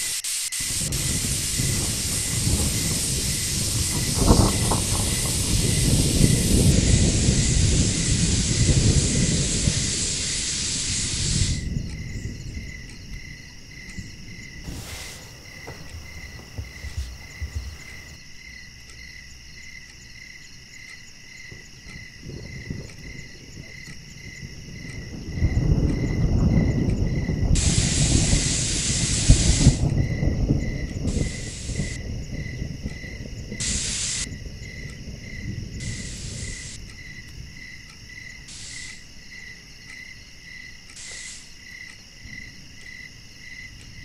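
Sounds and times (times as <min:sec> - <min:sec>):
pressure cooker steam hissing: 0:00.0 - 0:11.6, 0:14.7 - 0:15.9, 0:27.6 - 0:29.8, 0:31.1 - 0:32.0, 0:33.6 - 0:34.3, 0:38.5 - 0:39.0, 0:41.0 - 0:41.5.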